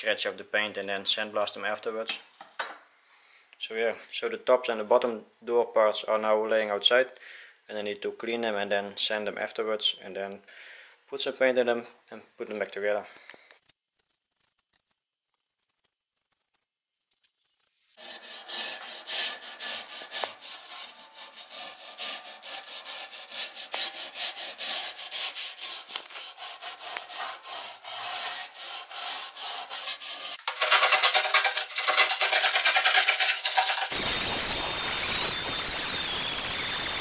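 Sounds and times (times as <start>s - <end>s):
paint scraped off metal by hand: 13.7s - 34.1s
power sander hissing and whining: 33.9s - 37.0s.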